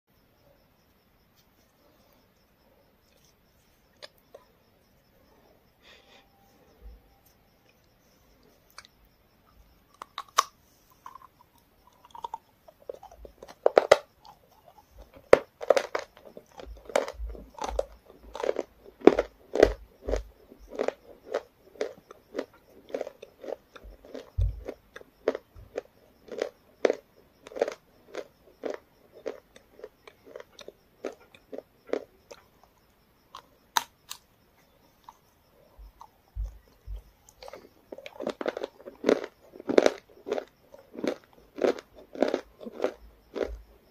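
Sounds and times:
person chewing crunchy food: 9.8s - 34.3s, 35.0s - 43.9s.

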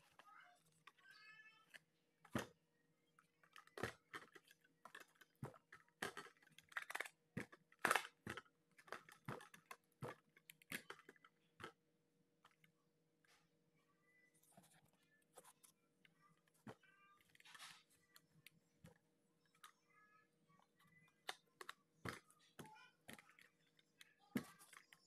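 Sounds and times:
plastic boxes clicking and knocking: 0.0s - 2.6s, 3.2s - 11.8s, 20.6s - 25.0s.

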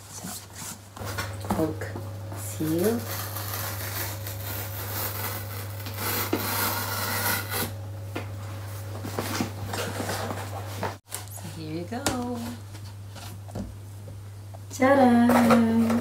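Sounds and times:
steady low hum: 0.0s - 16.0s
cardboard packaging scraping: 2.6s - 7.8s.

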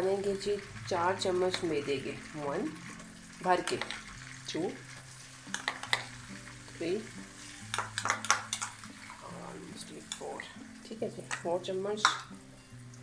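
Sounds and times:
butter sizzling in frying pan: 0.0s - 13.0s
spoon clicks: 7.7s - 8.8s.

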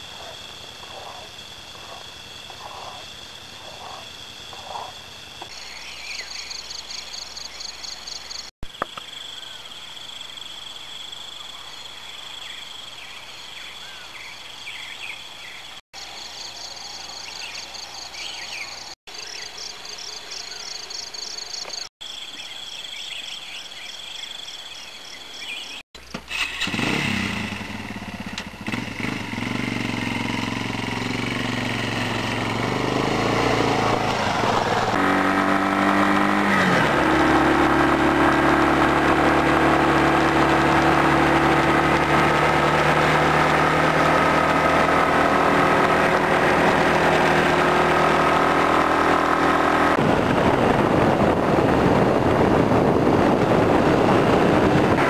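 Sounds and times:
chorus of high pulsing calls: 0.0s - 8.5s, 9.2s - 25.8s
motorcycle engine running: 26.2s - 55.0s.

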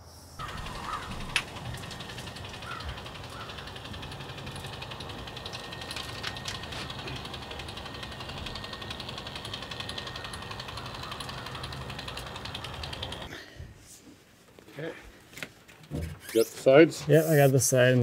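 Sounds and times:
impact driver rattling: 0.4s - 13.3s.

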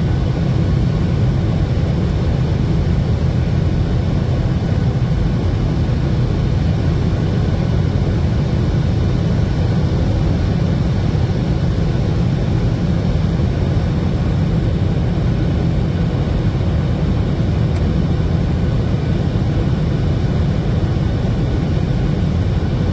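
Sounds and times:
jet engine cabin drone: 0.0s - 22.9s.

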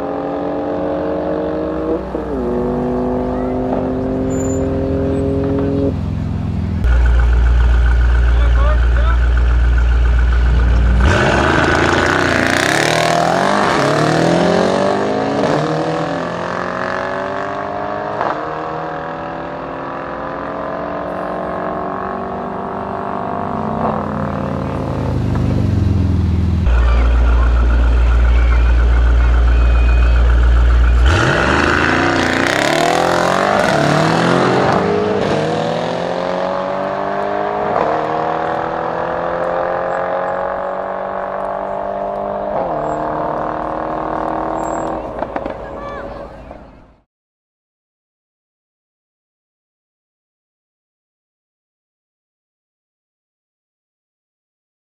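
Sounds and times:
cars accelerating flat out: 0.0s - 47.0s
engine idling rumble: 4.5s - 11.8s, 24.2s - 32.1s.

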